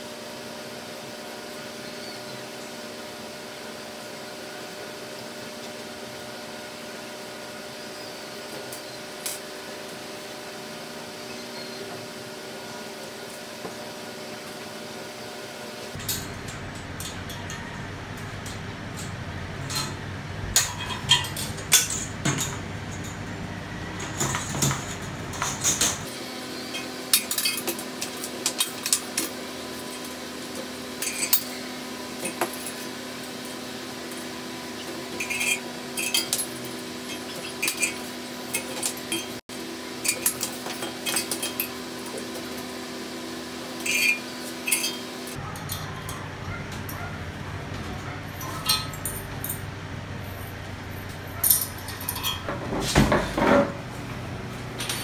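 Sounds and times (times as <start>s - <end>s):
steel hardware clinking: 24.0s - 30.2s, 31.0s - 31.6s, 34.8s - 39.4s, 40.0s - 42.6s, 43.8s - 47.1s, 48.3s - 49.7s, 50.3s - 52.5s.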